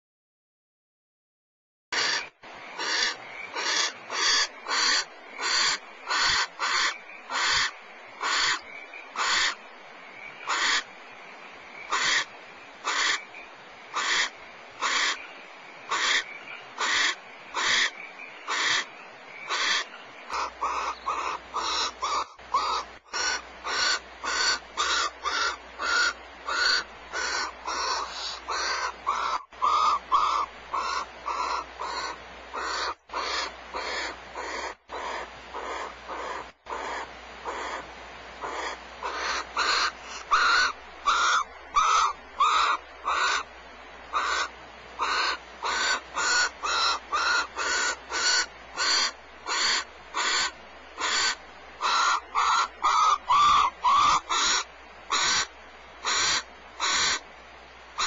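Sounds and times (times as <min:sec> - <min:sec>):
barn owls rasping calls: 0:02.0 - 0:09.6, 0:10.4 - 0:10.9, 0:11.8 - 0:13.3, 0:13.9 - 0:15.3, 0:15.9 - 0:43.5, 0:44.1 - 0:57.2.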